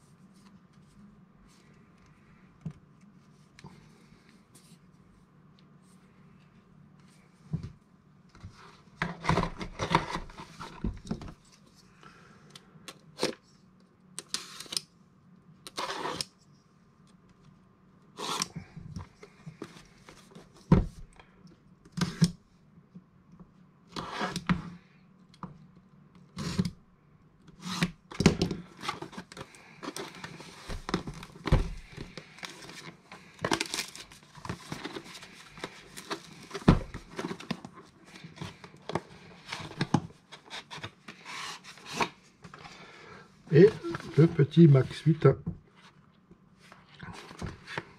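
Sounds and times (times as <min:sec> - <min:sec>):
packaging rustling: 0:28.7 - 0:42.6.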